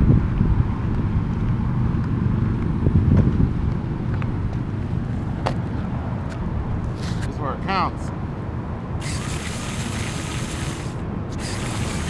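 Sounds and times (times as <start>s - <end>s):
toy car wheels and gears rumbling: 9.0s - 12.0s.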